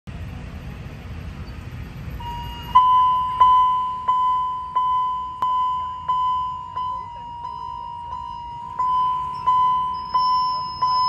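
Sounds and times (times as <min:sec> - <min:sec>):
low traffic rumble: 0:00.1 - 0:11.0
level-crossing warning bell: 0:02.1 - 0:11.0.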